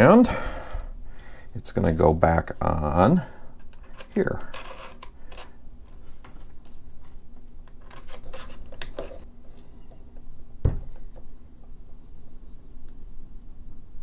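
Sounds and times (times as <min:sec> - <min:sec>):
small clicks and scrapes: 0:03.6 - 0:10.1
dull thump: 0:10.6 - 0:10.9.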